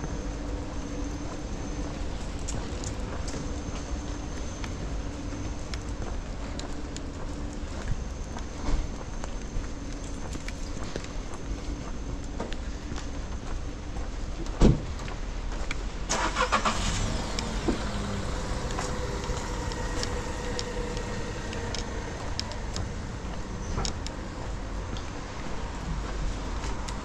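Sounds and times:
street noise: 0.0s - 27.0s
car running on wet street: 12.3s - 27.0s.

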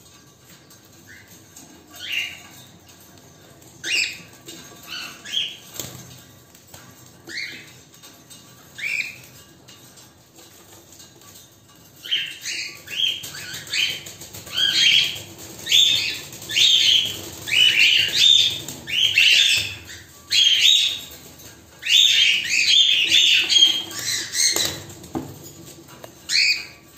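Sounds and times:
cockatiels chirping: 1.1s - 2.6s, 3.8s - 6.0s, 7.2s - 7.8s, 8.7s - 9.4s, 12.0s - 25.3s, 26.2s - 26.8s.

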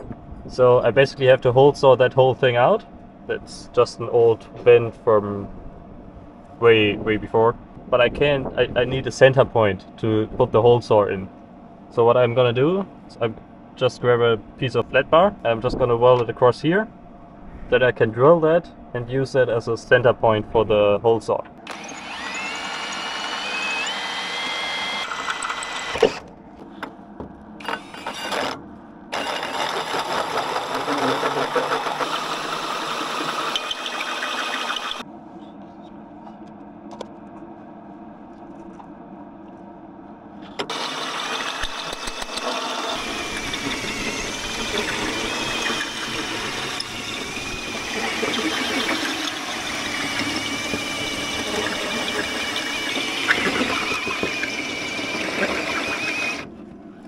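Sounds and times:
cordless drill boring steel: 21.7s - 26.2s, 27.6s - 35.0s, 40.7s - 56.5s
hole saw grinding metal: 21.7s - 26.2s, 27.6s - 35.0s, 40.7s - 56.5s.

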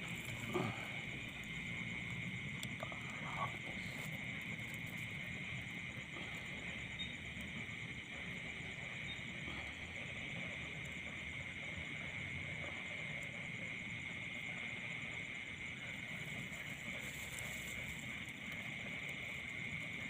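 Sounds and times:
frogs trilling: 0.0s - 20.0s
insects droning: 0.0s - 20.0s.

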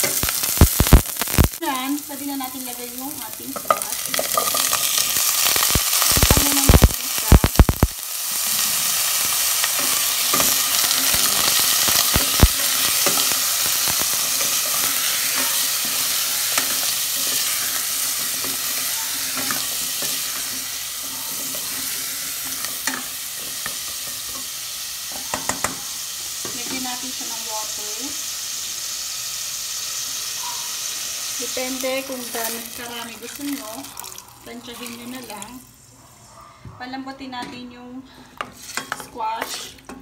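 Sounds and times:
squash sizzling in hot oil: 0.0s - 35.9s
pieces tumbling from metal strainer: 9.6s - 21.9s.

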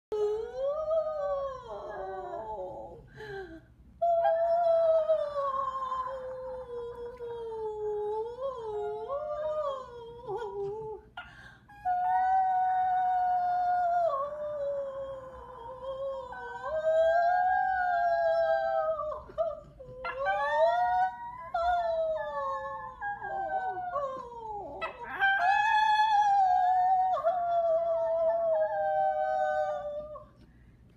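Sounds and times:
woman howling: 0.2s - 3.0s, 11.7s - 30.3s
dog howling: 11.9s - 30.3s.

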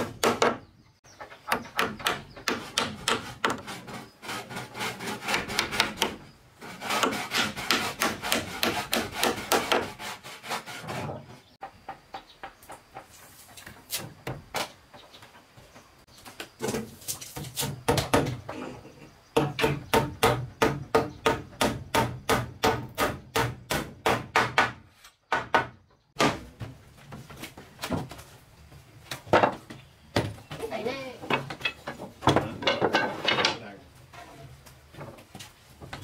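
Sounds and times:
hammer striking wooden boards: 0.0s - 0.6s, 1.5s - 3.7s, 5.1s - 6.2s, 6.8s - 10.0s, 19.4s - 26.7s.

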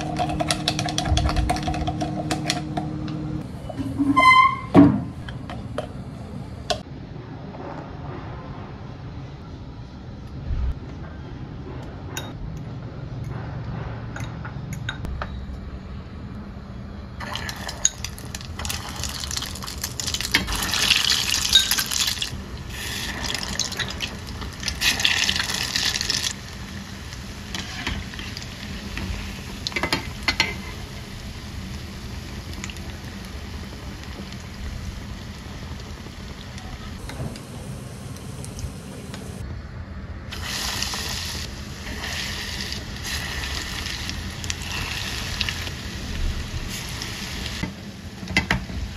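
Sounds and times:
food sizzling in hot oil: 17.2s - 36.4s, 40.3s - 47.7s.

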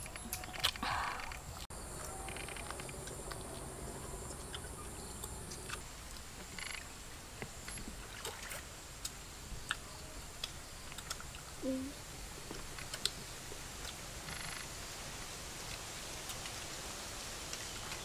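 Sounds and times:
quiet outdoor background noise: 0.0s - 18.0s.

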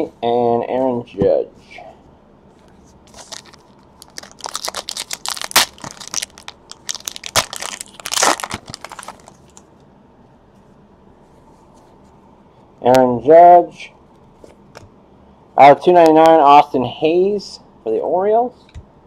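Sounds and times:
foil wrapper tearing and crinkling: 3.1s - 9.6s.

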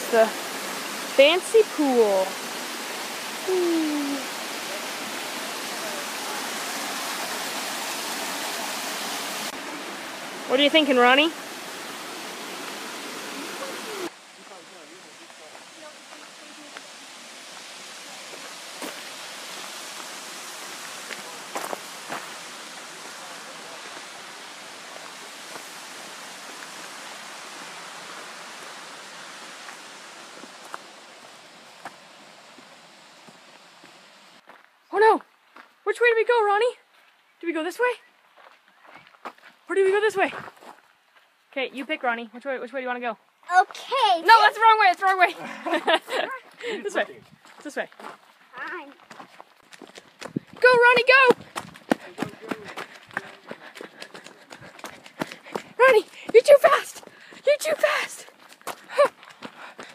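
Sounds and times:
water rushing over rocks: 0.0s - 34.4s, 55.1s - 59.9s
footsteps on gravel: 18.3s - 19.1s, 20.8s - 22.4s, 34.4s - 35.8s, 38.2s - 39.6s, 40.2s - 40.9s, 44.9s - 59.9s.

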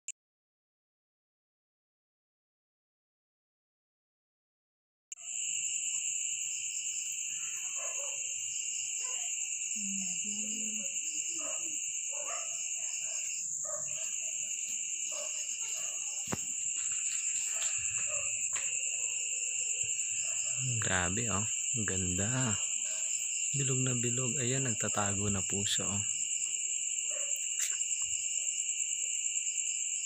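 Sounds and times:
crickets trilling: 5.2s - 30.0s.

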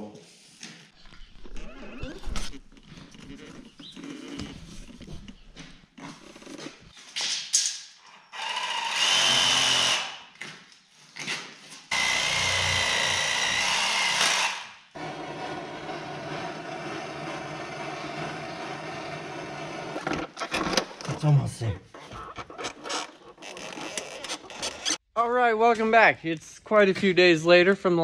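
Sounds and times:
power tool whining: 11.9s - 20.2s.

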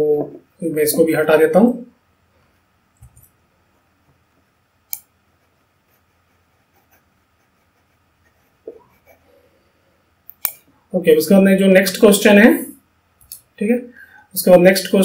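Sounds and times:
computer mouse click: 4.9s - 5.1s
soft small clicks: 10.2s - 10.6s.

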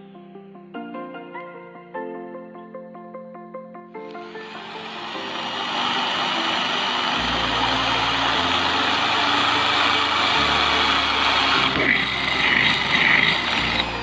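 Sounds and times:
electric drill boring into metal can: 4.1s - 14.0s.

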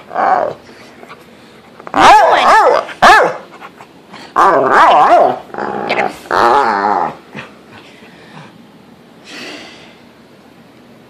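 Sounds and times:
dog warbling growls: 0.0s - 0.7s, 4.4s - 7.5s.

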